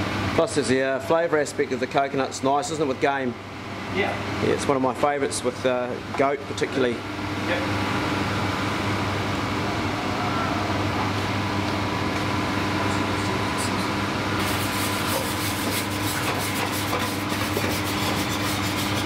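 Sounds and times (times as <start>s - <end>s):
kitchen ventilation hum: 0.0s - 19.0s
whisk scraping a metal pan: 14.4s - 19.0s.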